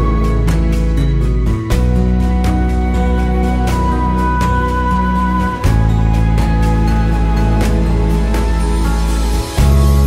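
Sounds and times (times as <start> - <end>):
background music with held chords: 0.0 - 10.0.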